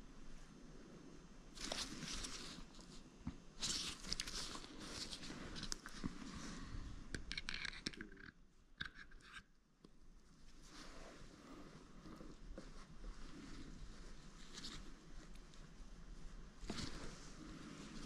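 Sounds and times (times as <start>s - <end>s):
hands scraping and rustling: 1.5s - 8.2s, 10.4s - 18.0s.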